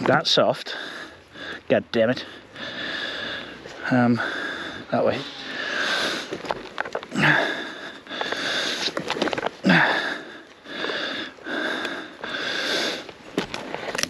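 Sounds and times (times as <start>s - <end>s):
heavy rapid breathing: 0.0s - 14.0s
short grunts: 7.0s - 8.8s, 9.6s - 10.4s.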